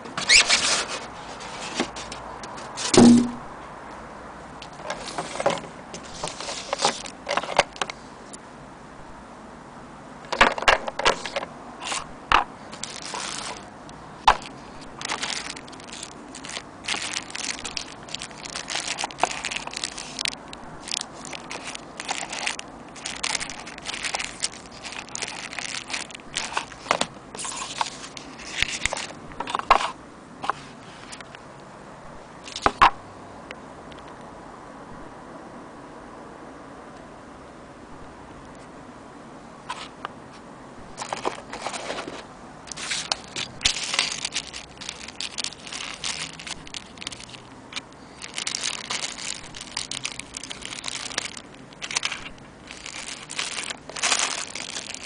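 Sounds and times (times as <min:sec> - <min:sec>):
box bump: 0:02.8 - 0:03.5
plastic bags crinkling: 0:04.8 - 0:07.9, 0:12.7 - 0:30.0, 0:40.9 - 0:55.0.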